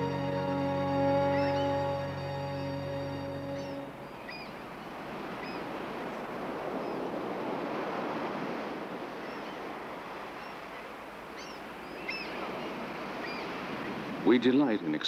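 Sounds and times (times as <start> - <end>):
surf breaking on rocky beach: 4.5 - 15.0.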